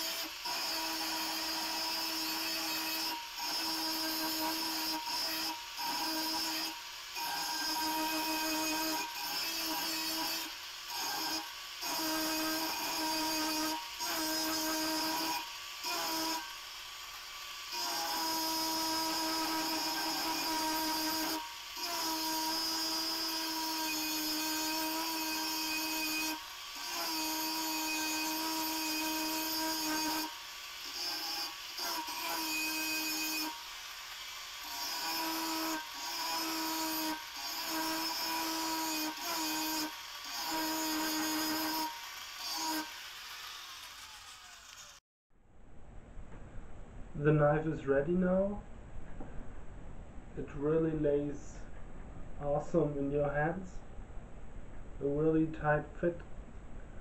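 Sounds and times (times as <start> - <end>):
angle grinder grinding metal: 0.0 - 45.0.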